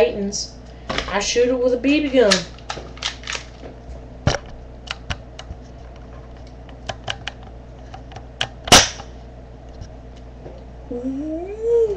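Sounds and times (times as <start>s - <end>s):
loud pistol snap: 8.6s - 9.1s.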